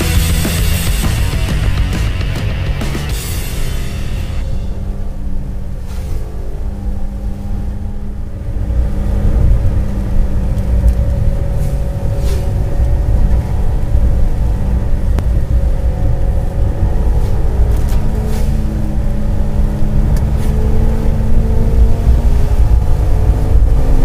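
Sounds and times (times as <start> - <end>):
car engine and road rumble: 0.0 - 24.0
tyres swishing on wet road: 5.0 - 24.0.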